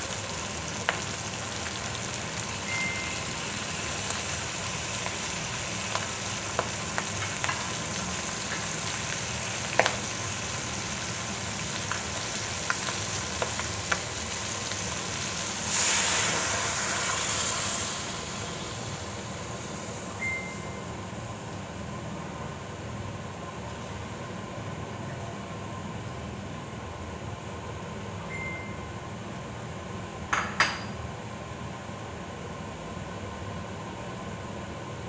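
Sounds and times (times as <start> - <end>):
food sizzling in a pot: 0.0 - 21.0
liquid poured into hot pot: 15.6 - 18.9.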